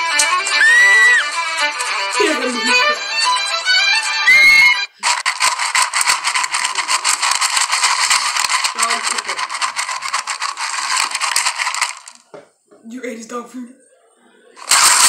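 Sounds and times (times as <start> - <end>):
dog crunching kibble: 5.0 - 12.3, 14.6 - 15.0
kibble rattling in metal bowl: 5.0 - 12.3, 14.6 - 15.0.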